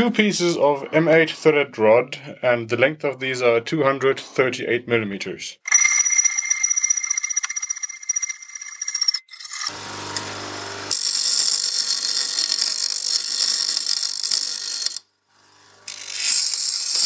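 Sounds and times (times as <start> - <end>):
metal grinding on wheel: 5.7 - 9.8, 10.9 - 15.0, 15.9 - 17.0
hacksaw cutting metal rod: 9.3 - 15.0, 15.9 - 17.0
bench grinder motor humming: 9.4 - 17.0.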